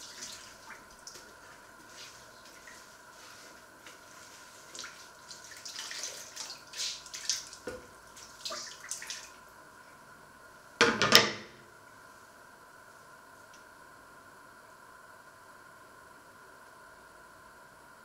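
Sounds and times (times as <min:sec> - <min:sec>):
dish scrubbing: 0:00.0 - 0:09.0
water splashing in a sink: 0:00.0 - 0:09.5
loud clatter of dishes: 0:10.8 - 0:11.6.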